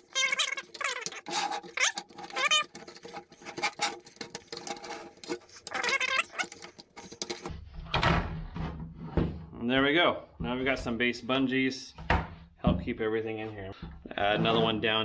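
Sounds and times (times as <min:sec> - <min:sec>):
short squeaks: 0:00.0 - 0:04.0, 0:05.5 - 0:06.8
hand rubbing over cords: 0:00.0 - 0:07.5.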